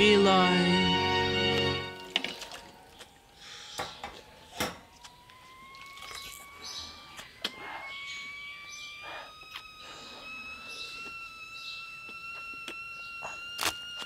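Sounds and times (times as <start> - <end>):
faint birds chirping: 2.3 - 13.6
thin rising tone: 5.3 - 14.0.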